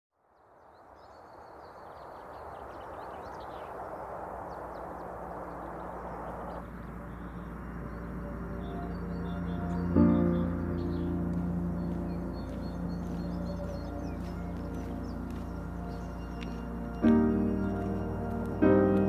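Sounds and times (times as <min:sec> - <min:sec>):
small birds chirping: 0:00.3 - 0:19.0
steady rushing hiss: 0:01.2 - 0:12.1
low ambient music drone: 0:02.2 - 0:19.0.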